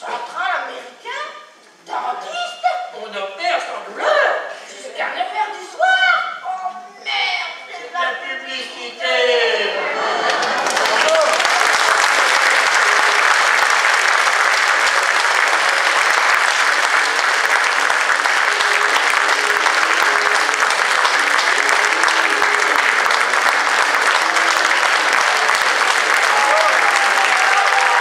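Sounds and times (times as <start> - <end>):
audience applauding: 10.0 - 28.0.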